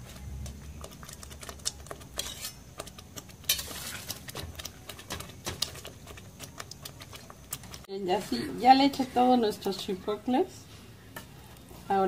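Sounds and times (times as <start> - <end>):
sauce simmering: 0.0 - 7.9.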